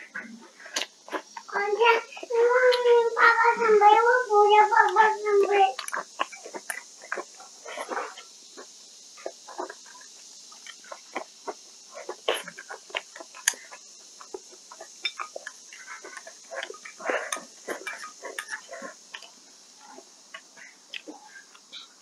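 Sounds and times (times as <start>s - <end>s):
sharp mouth clicks: 0.2s - 1.5s, 20.3s - 21.9s
person chewing and smacking: 0.6s - 1.5s, 5.7s - 21.9s.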